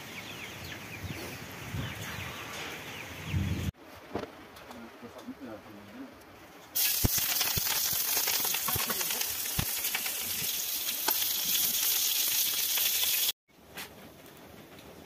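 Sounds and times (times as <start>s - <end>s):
chillies sizzling in hot oil: 6.8s - 13.4s.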